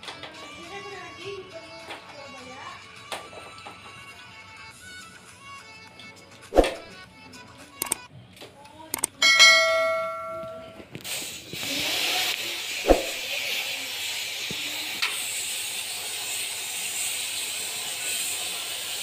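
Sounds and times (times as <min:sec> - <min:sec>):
bell-like chime: 0:09.2 - 0:10.8
water spray hissing: 0:11.0 - 0:19.0.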